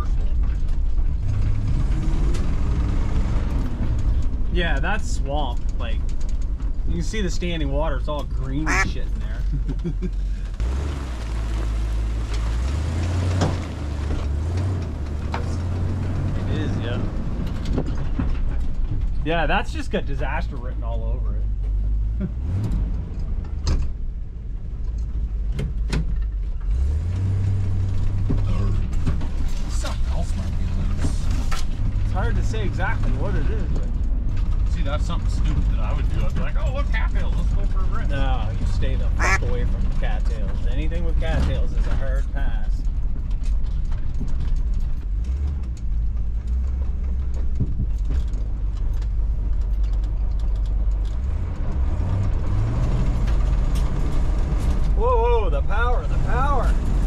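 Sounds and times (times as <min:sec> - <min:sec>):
vehicle engine droning: 0:00.0 - 0:57.0.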